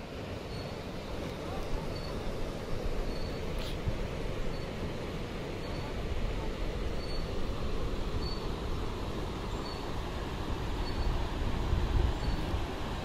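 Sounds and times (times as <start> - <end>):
faint high chirp: 0.5 - 0.8, 1.8 - 2.2, 3.0 - 3.8, 4.5 - 4.8, 5.6 - 6.0, 7.0 - 7.3, 8.2 - 8.5, 9.5 - 9.9, 10.8 - 11.2, 12.2 - 12.5
wind buffeting microphone: 10.4 - 13.0.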